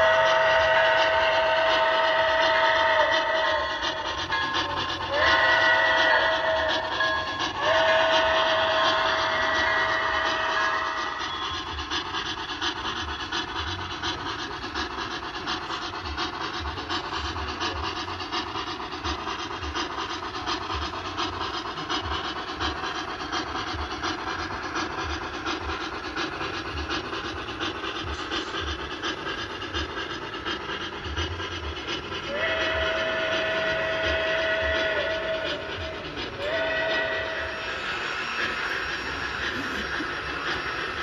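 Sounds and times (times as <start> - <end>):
model locomotive whistle: 0.0 - 12.4, 31.8 - 41.0
model trains rumbling: 0.0 - 41.0
wheels clicking on track: 0.0 - 41.0.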